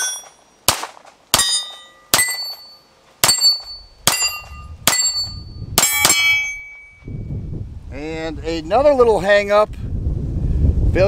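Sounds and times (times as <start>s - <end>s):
pistol shots: 0.0s - 2.6s
steel target ringing: 0.0s - 7.2s.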